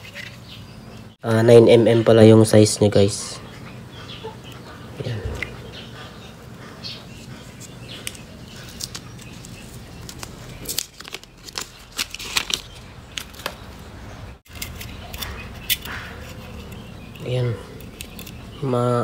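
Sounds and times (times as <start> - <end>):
plastic and paper wrapping tearing: 8.6 - 13.6.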